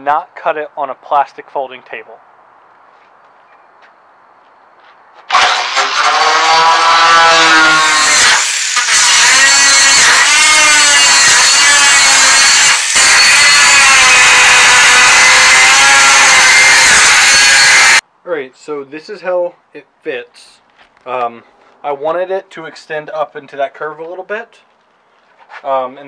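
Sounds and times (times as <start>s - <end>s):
angle grinder cutting sheet metal: 5.3s - 18.0s.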